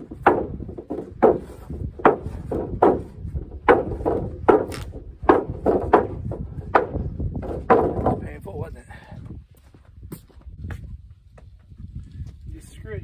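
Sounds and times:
wooden boards knocking on wood: 0.0s - 8.4s.

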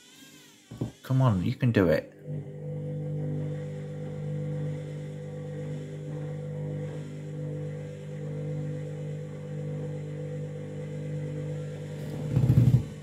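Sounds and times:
washing machine motor hum: 0.0s - 13.0s.

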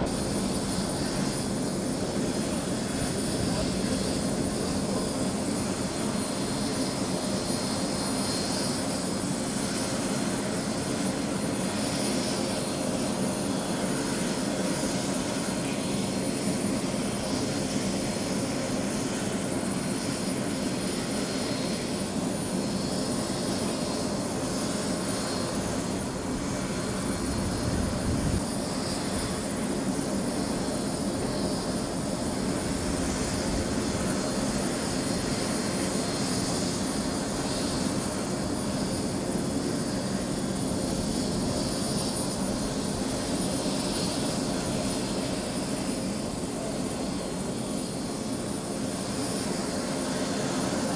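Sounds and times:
helicopter idling: 0.0s - 50.9s.

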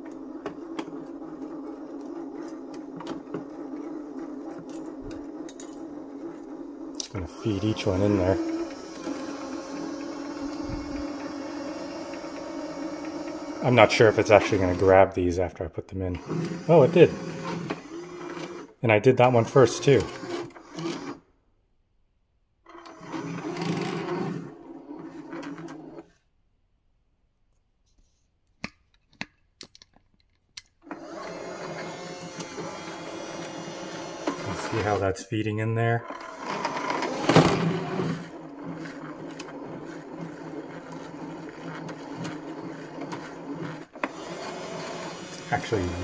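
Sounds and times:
feeder clicks: 0.0s - 15.2s, 28.6s - 35.1s
filament feeder motor whirring: 0.0s - 15.4s, 16.0s - 21.2s, 22.7s - 26.1s, 30.8s - 35.2s, 36.0s - 46.0s.

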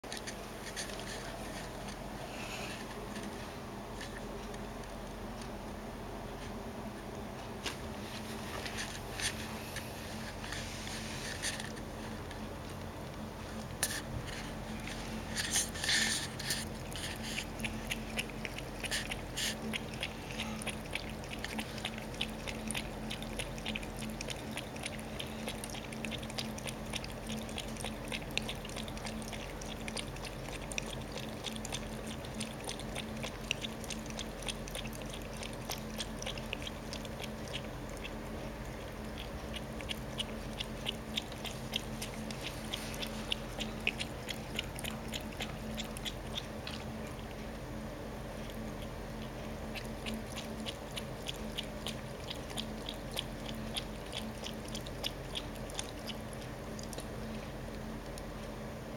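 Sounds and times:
cat lapping water: 14.7s - 58.7s.

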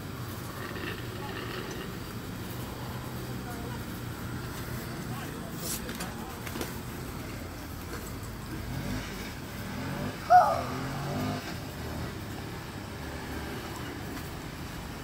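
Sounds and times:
vehicle engine revving: 0.0s - 15.0s
short pitched cry: 10.3s - 10.8s.

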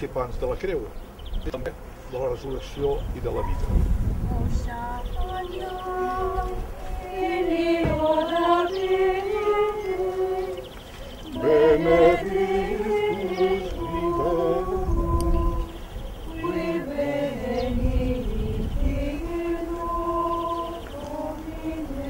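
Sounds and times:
voices singing slow chant: 4.2s - 22.0s.

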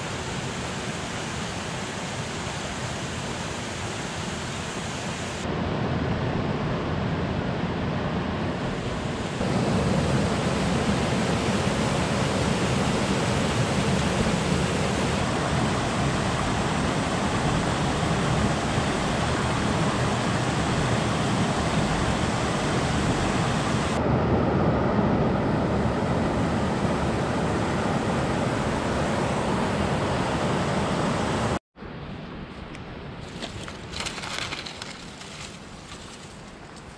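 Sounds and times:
river rushing over boulders: 33.2s - 36.9s.

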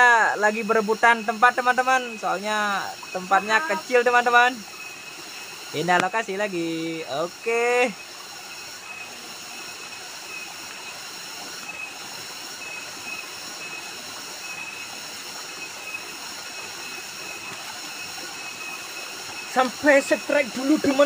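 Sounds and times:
faint high steady tone: 0.0s - 5.1s
waterfall splashing into stream: 1.3s - 21.0s.

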